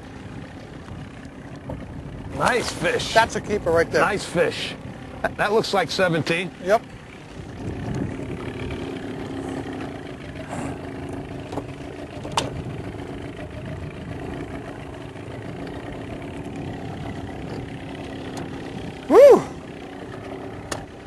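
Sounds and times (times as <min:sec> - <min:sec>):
boat engine idling: 0:00.0 - 0:21.0
wind rumbling on microphone: 0:07.0 - 0:21.0.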